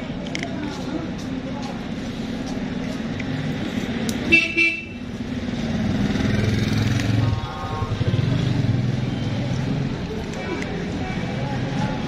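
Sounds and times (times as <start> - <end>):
car horn toots: 4.3 - 5.0.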